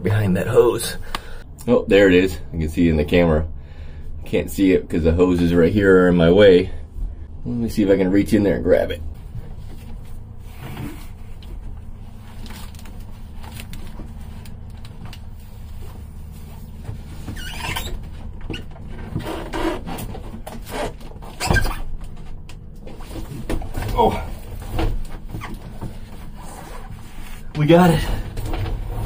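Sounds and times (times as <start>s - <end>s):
steady low hum: 0.0s - 29.0s
rustling and scraping among hoses: 8.8s - 29.0s.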